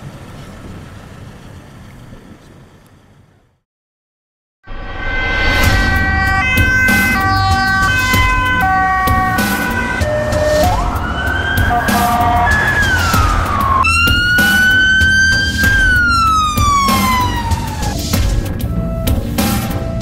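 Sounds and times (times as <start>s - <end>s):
emergency vehicle sirens: 5.4s - 20.0s.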